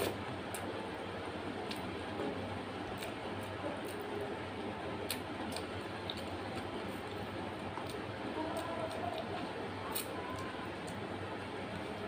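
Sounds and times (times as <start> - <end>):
wet clicks and smacks of eating: 1.6 - 1.9, 5.0 - 9.3.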